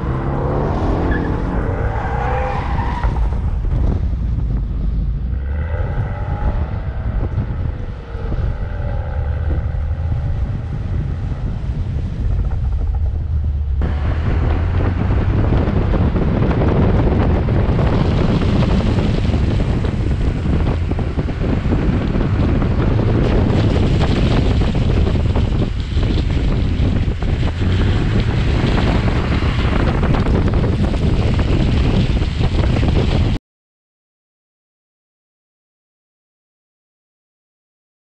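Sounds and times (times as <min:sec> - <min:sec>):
wind noise on microphone: 0:00.0 - 0:33.4
car engine running: 0:06.4 - 0:33.3.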